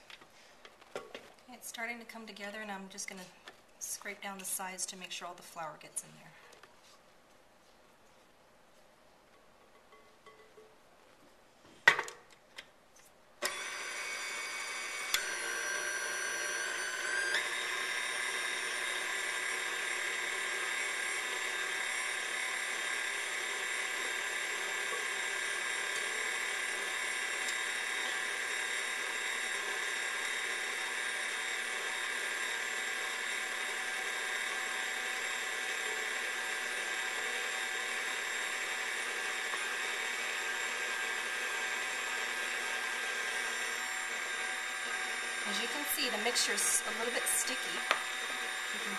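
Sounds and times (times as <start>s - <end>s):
stand mixer motor whining: 13.4s - 48.9s.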